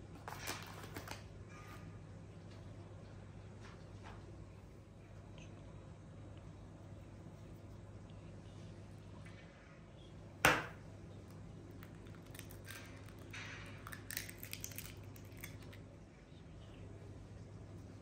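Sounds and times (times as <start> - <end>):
eggshell clicks and crackles: 11.2 - 16.0.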